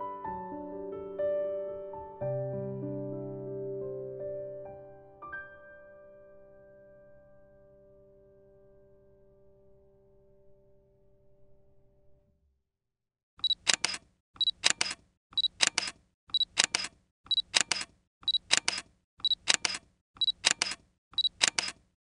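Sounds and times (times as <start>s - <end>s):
camera focus beep: 13.4s - 21.8s
camera shutter clicks: 13.5s - 21.8s.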